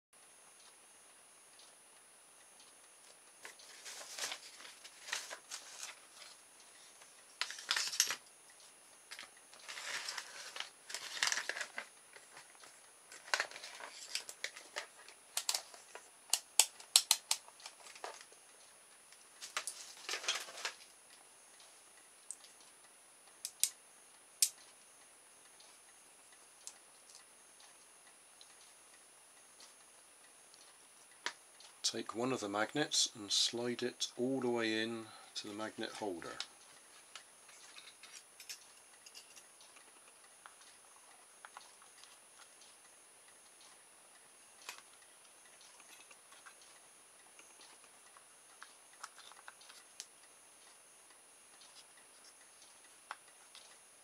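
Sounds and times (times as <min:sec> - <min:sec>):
plastic parts scraping: 0:03.4 - 0:06.4, 0:07.4 - 0:08.2, 0:09.1 - 0:16.0, 0:19.4 - 0:20.8
sharp plastic clicks: 0:10.6 - 0:18.3, 0:23.4 - 0:23.8.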